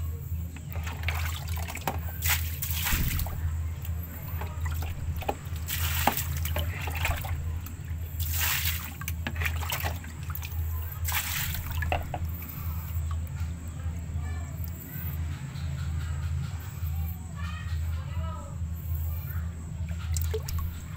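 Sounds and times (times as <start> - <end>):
low hum: 0.0 - 20.9
water splashing in plastic tub: 0.6 - 13.3, 19.9 - 20.9.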